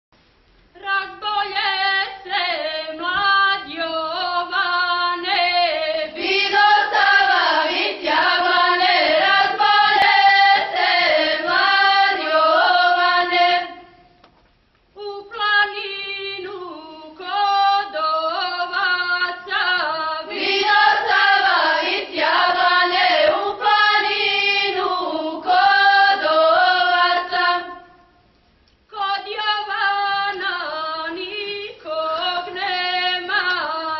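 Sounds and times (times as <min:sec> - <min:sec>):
group singing unaccompanied: 0:02.6 - 0:14.1, 0:17.3 - 0:28.0.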